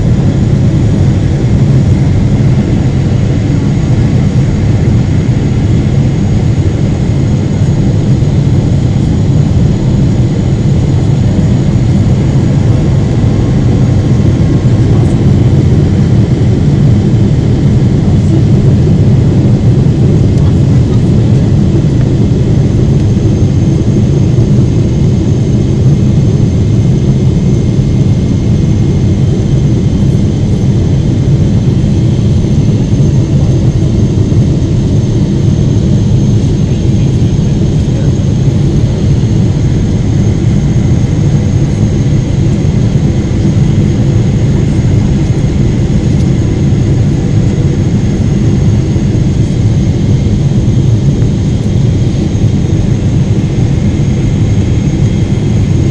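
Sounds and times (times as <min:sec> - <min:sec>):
jet engines rumbling: 0:00.0 - 0:55.9.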